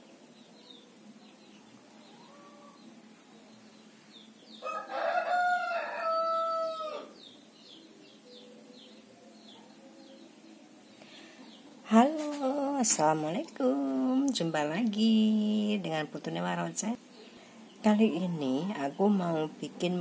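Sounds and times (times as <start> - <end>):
rooster crowing: 2.0 - 2.9, 4.6 - 7.3.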